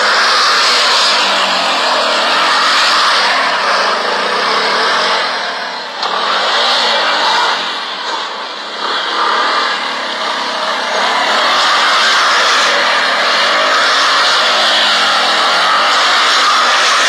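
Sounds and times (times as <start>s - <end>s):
loud noisy hiss: 0.0s - 17.0s
motorcycle engine revving: 0.0s - 17.0s.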